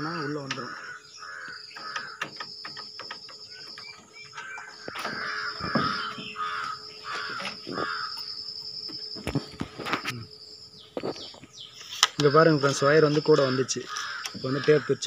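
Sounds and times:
crow cawing: 0.0 - 2.5, 3.6 - 8.4, 13.3 - 15.0
sharp clicks and knocks: 1.7 - 8.2.

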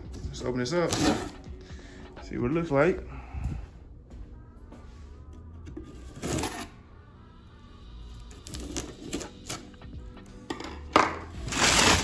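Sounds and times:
knife slitting packing tape: 11.5 - 12.0.

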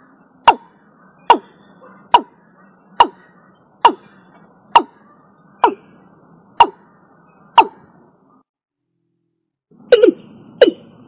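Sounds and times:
bird calling falling notes: 0.0 - 8.2.

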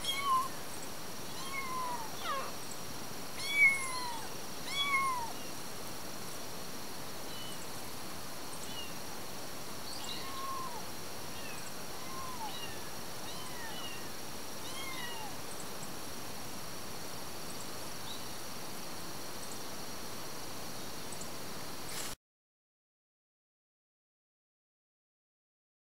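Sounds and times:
kittens mewing: 0.0 - 0.6, 1.4 - 2.6, 3.4 - 5.4, 10.1 - 10.8, 11.4 - 14.0
steady hiss: 0.0 - 22.2.

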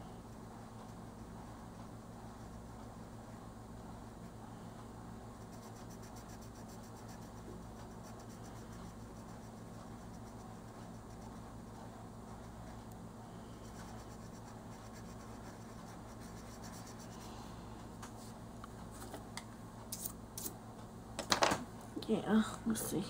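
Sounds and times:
colored pencil scratching on paper: 5.4 - 11.5, 13.6 - 17.3.

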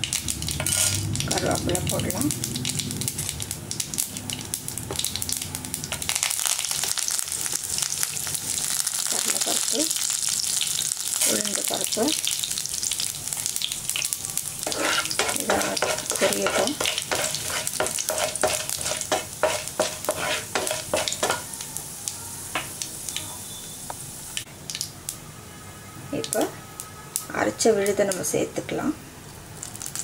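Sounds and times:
seeds sizzling in hot oil: 0.0 - 25.2, 26.1 - 30.0
wooden spatula stirring: 14.6 - 21.5.

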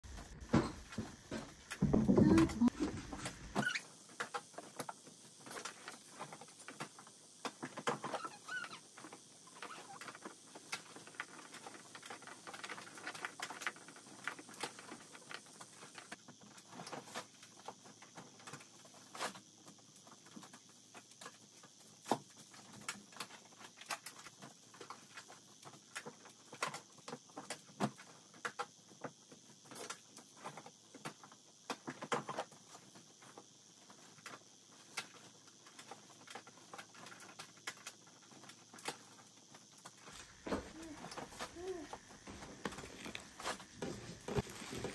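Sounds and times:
clothes rustling: 40.0 - 44.9.

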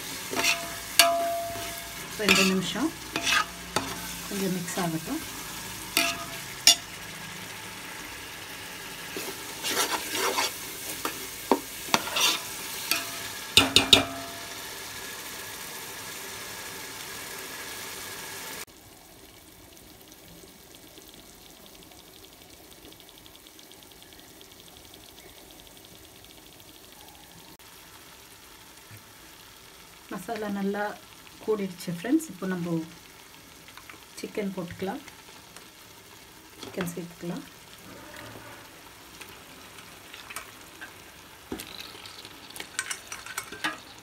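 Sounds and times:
food sizzling in oil: 0.0 - 44.0
ladle scraping pot: 0.3 - 4.1, 9.2 - 10.6.

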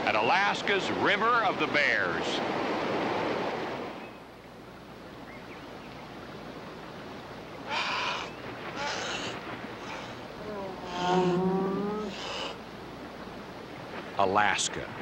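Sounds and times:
wind: 0.0 - 15.0
river water rushing: 6.1 - 15.0
low wavering cry: 7.7 - 12.6.

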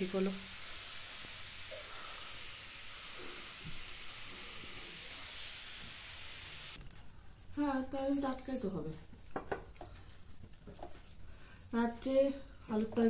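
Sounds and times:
steady high hiss: 0.0 - 6.8.

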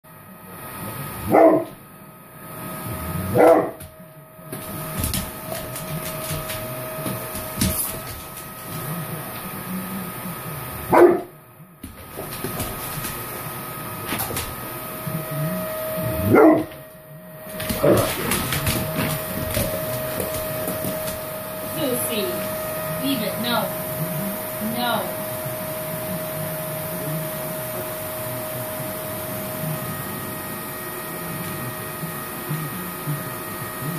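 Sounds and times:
vacuum cleaner running: 0.1 - 33.9
dog barking deeply: 1.3 - 1.7, 3.3 - 3.8, 10.9 - 11.3, 16.3 - 16.7.

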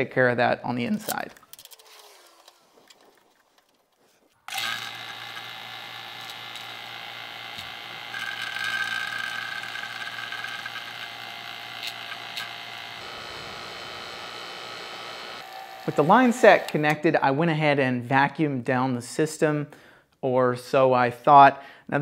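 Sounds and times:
vacuum pump humming: 4.5 - 17.0.

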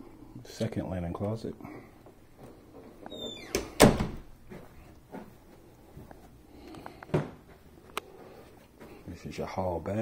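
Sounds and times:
door squeaking: 3.0 - 4.2.

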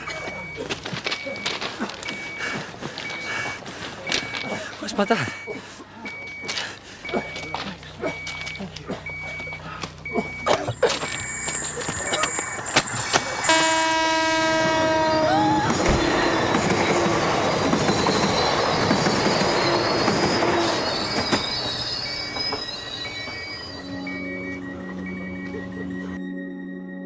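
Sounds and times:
short beeps: 5.1 - 13.9, 15.9 - 17.2, 20.6 - 26.2
train rushing past: 12.2 - 26.2
train horn blast: 13.4 - 16.3.

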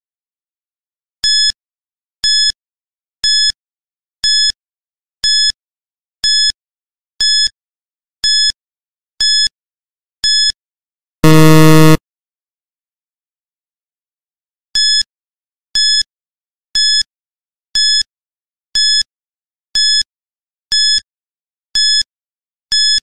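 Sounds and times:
loud low buzzer: 11.2 - 12.0
short high beeps: 11.2 - 12.0.

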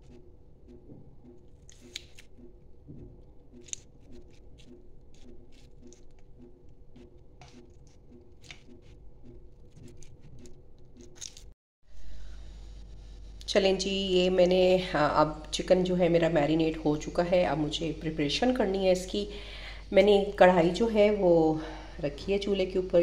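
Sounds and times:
pulsing low hum: 11.8 - 23.0.

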